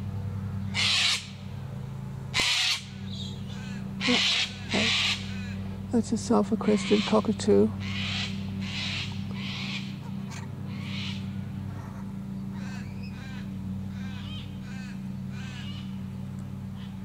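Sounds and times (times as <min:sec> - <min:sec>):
distant lawnmower engine drone: 0:00.0 - 0:17.0
repeated bird calls: 0:00.0 - 0:17.0
cockatoo screeching: 0:00.7 - 0:01.3, 0:02.3 - 0:05.6, 0:06.6 - 0:12.0, 0:12.6 - 0:15.9.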